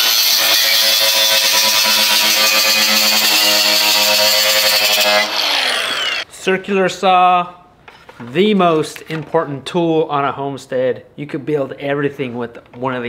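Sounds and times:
angle grinder cutting wire mesh: 0.0s - 6.3s
grinder motor winding down: 0.0s - 6.3s.

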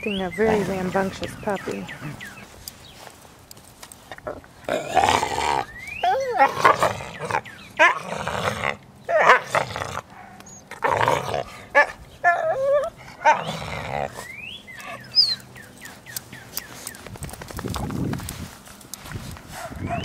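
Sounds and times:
dogs growling and snarling: 4.1s - 15.4s
puppy yelping: 6.0s - 8.0s, 14.8s - 15.5s.

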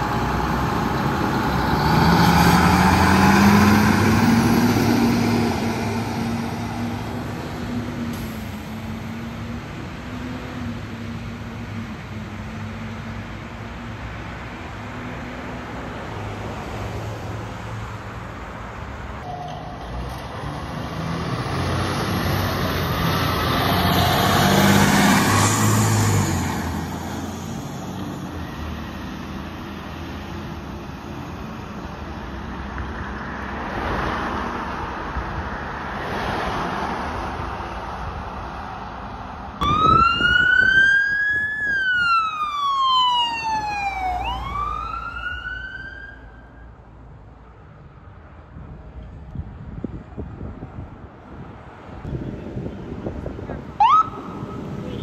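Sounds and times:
fire engine driving past: 0.0s - 48.9s, 49.5s - 55.0s
road traffic: 0.0s - 55.0s
siren wail: 39.6s - 46.7s, 53.8s - 55.0s.

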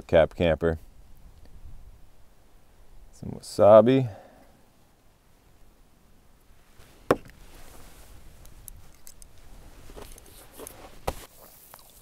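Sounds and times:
rustling: 6.5s - 11.6s.

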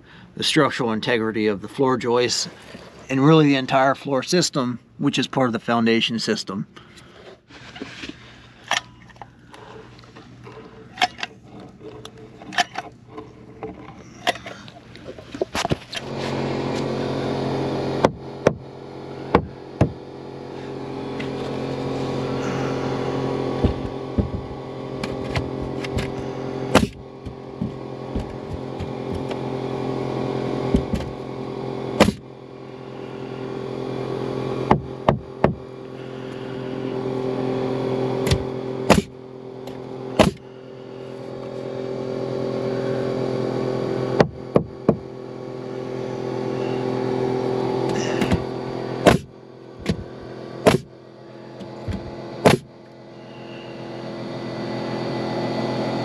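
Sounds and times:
air compressor hum: 0.0s - 56.0s
nail gun bangs: 32.0s - 32.2s, 38.2s - 39.1s, 40.2s - 40.4s, 49.0s - 50.0s, 50.7s - 50.9s, 52.4s - 52.7s.

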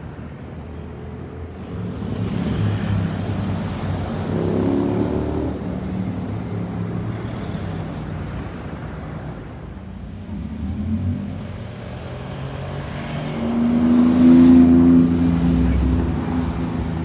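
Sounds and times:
city street traffic: 0.0s - 17.0s
sports car accelerating past: 1.7s - 6.2s, 10.3s - 17.0s.

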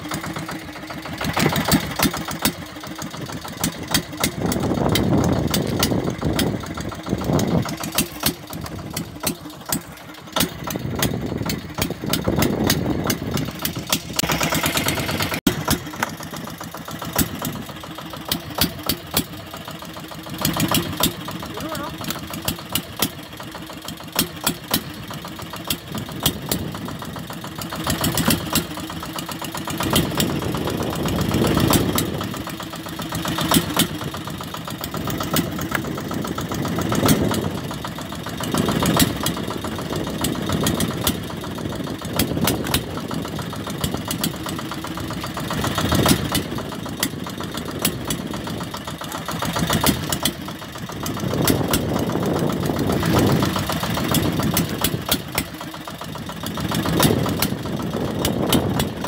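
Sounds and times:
boat engine knocking: 0.0s - 59.0s.

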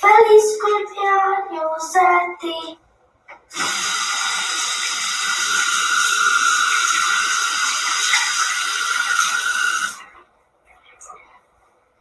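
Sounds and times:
sink tap running: 3.5s - 10.0s.

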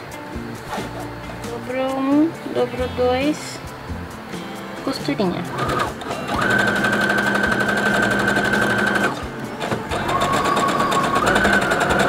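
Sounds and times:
sewing machine whining: 5.5s - 12.0s.

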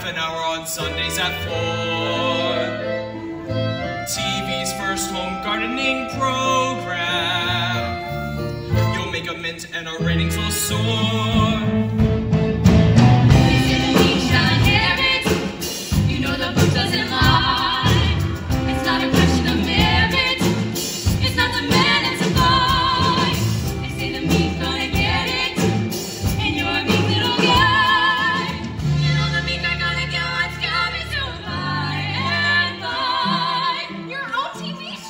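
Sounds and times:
pit band playing: 0.0s - 35.0s
women singing in harmony: 13.5s - 35.0s.

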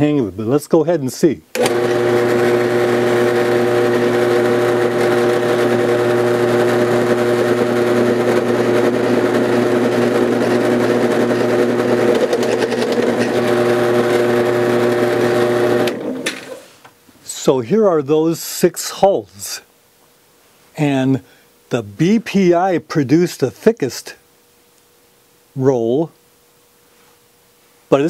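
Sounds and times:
drill press motor humming: 1.6s - 16.7s.

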